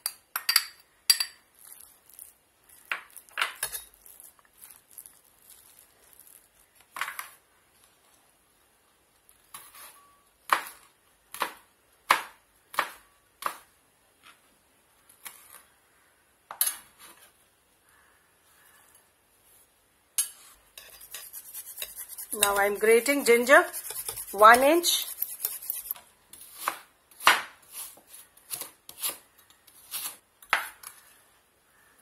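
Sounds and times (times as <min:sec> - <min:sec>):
spoon scraping glass bowl: 0:03.6 - 0:06.4, 0:20.2 - 0:26.0.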